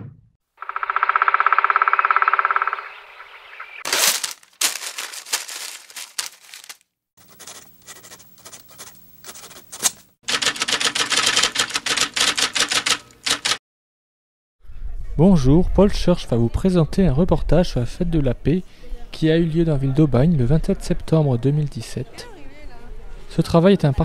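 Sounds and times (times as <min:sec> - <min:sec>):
rapid sharp clicks: 0:10.3 - 0:13.6.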